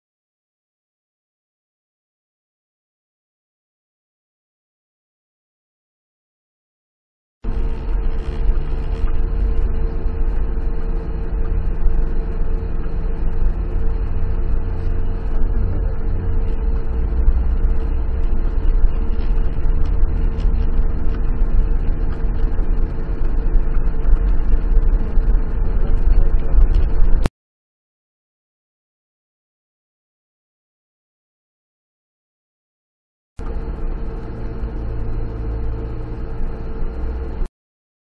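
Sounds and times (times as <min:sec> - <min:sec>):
tyres rumbling on dirt road: 0:07.5 - 0:27.2
car engine running: 0:07.5 - 0:27.3, 0:33.4 - 0:37.5.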